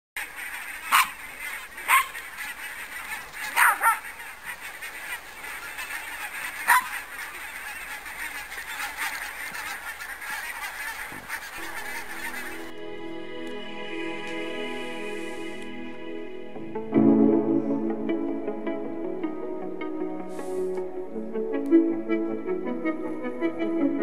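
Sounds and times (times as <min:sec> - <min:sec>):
loud single goose calls: 0:00.2 - 0:12.8
geese honking: 0:00.2 - 0:24.0.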